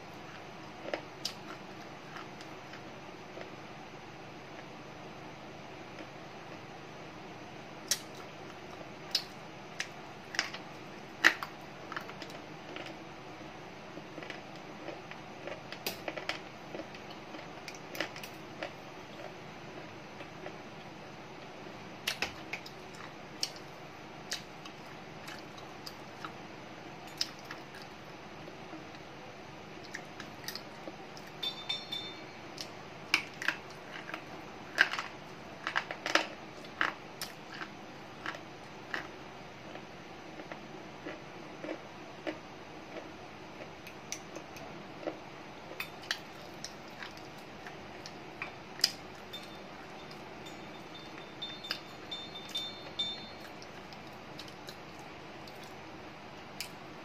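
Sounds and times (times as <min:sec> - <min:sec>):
low room hum: 0:00.0 - 0:57.0
crunching of chewed pencil: 0:07.9 - 0:13.0, 0:14.0 - 0:20.6, 0:32.6 - 0:39.1, 0:39.7 - 0:55.8.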